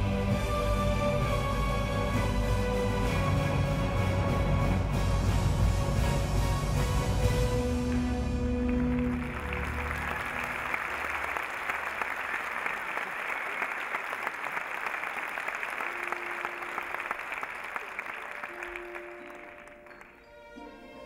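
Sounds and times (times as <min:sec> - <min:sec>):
audience applauding: 0:07.7 - 0:20.2
held music notes: 0:15.6 - 0:21.0.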